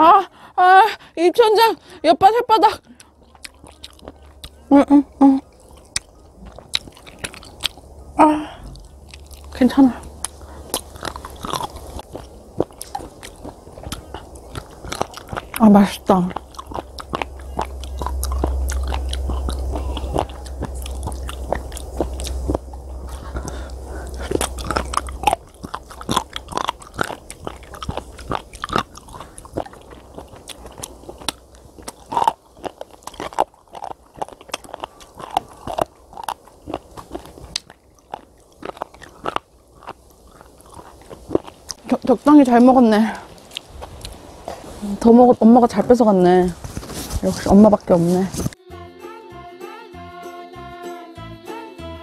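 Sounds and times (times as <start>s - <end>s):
crunching and chewing: 2.6s - 48.6s
wind rumble on microphone: 6.4s - 32.1s.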